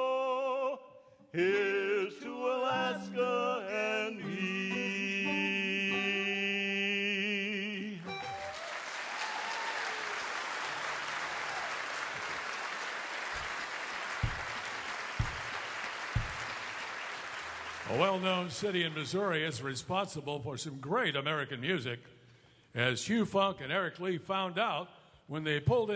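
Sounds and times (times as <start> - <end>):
man singing: 0.0 - 8.2
guitar: 8.0 - 8.6
audience applause: 8.0 - 19.4
dull thumps: 14.2 - 16.8.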